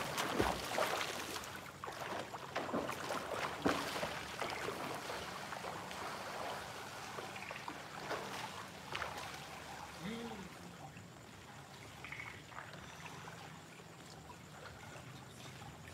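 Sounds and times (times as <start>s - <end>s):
pool water splashing: 0.0s - 15.9s.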